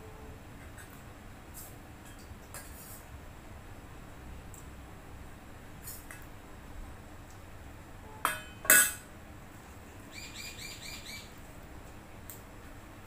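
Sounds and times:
bird chirping: 10.1 - 11.4.

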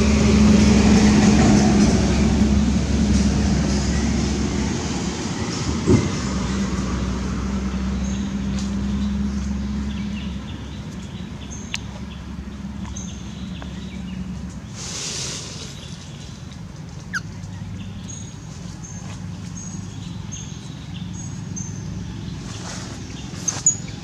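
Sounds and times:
brief rustle: 22.4 - 23.9.

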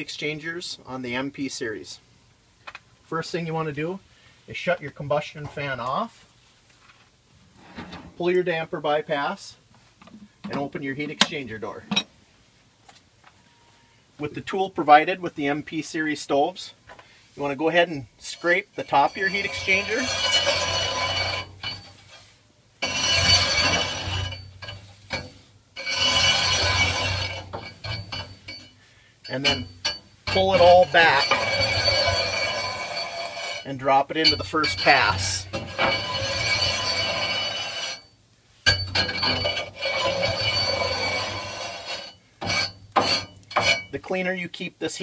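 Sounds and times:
metal rod scraping metal: 18.2 - 44.1.

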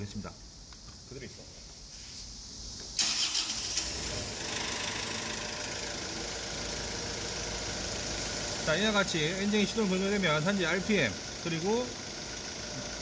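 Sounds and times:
diesel engine starting and running: 3.0 - 13.0.

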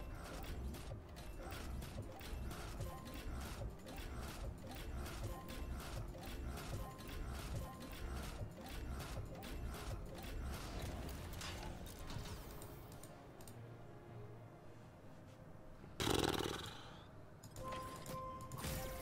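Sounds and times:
mechanical clacking: 0.0 - 13.6.

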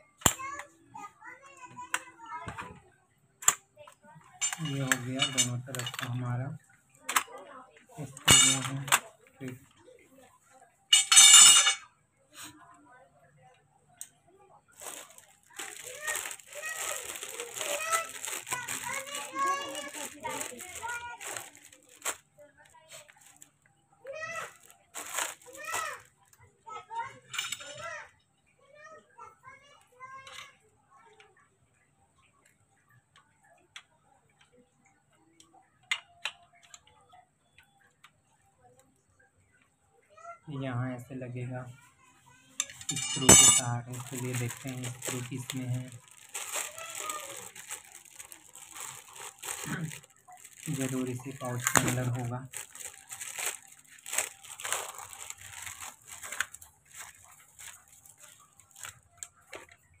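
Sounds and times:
plastic pouch crinkling: 4.4 - 6.3, 14.8 - 23.5, 24.2 - 26.1, 42.6 - 59.8.

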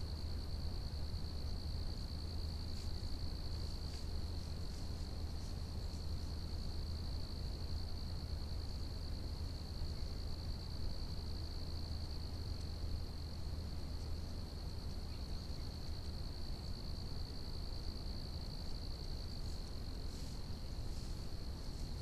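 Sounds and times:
insect chorus trilling: 0.0 - 22.0
faint ticks: 12.5 - 12.8.

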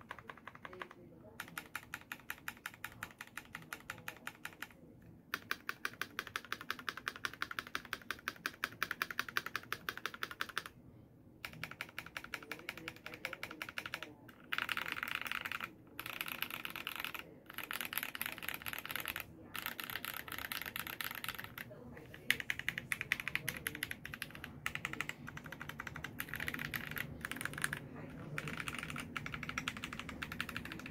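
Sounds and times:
mechanical keyboard typing: 0.0 - 10.7, 11.4 - 30.9.

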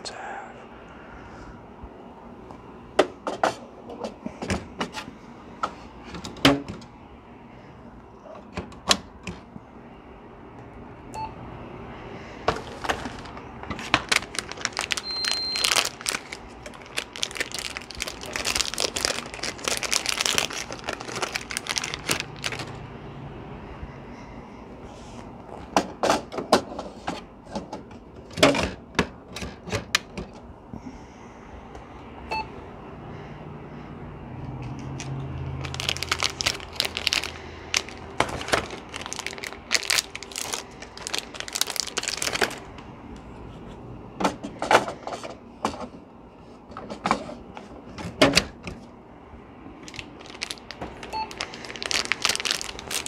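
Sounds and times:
packaging rustling and crinkling: 12.5 - 22.8, 34.6 - 42.8, 49.8 - 53.0.

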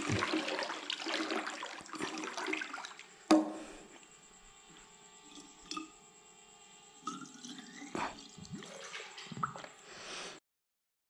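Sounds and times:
bottle gurgling underwater: 7.1 - 9.7.

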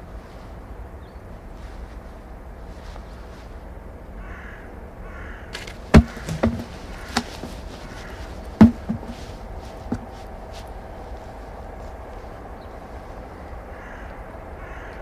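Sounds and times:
crows cawing: 4.2 - 10.3, 13.3 - 15.0
wooden stool knocking on ground: 5.6 - 7.7, 8.6 - 9.3, 9.9 - 10.2.

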